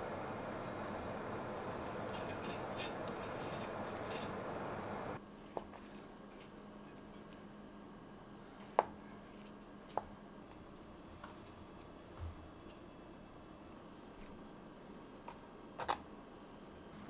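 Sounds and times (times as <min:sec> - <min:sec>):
rushing noise: 0:00.0 - 0:05.2
faint steady hum: 0:00.0 - 0:17.0
utensils clinking against dishes: 0:01.7 - 0:04.4.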